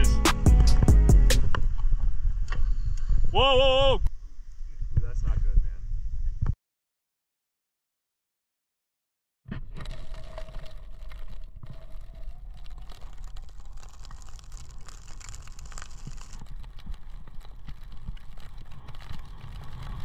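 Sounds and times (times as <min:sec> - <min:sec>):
clicks and crackles: 0:09.5 - 0:20.0.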